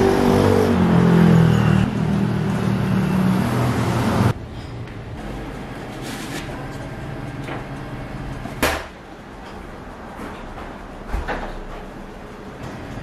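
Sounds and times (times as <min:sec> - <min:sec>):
traffic noise: 0:00.0 - 0:13.0.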